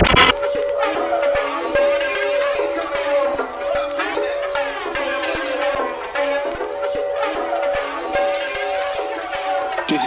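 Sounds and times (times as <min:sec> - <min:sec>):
steady held tone: 0:00.0 - 0:00.4.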